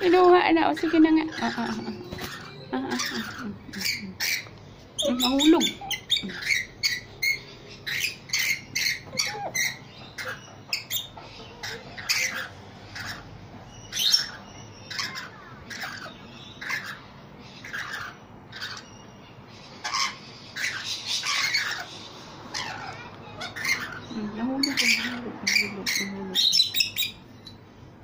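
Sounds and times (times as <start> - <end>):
lorikeets calling: 0.0 - 28.0.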